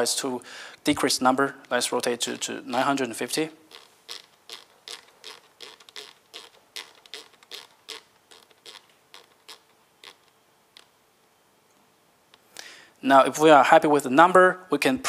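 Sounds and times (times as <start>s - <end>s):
rotary knob clicking: 3.7s - 10.9s.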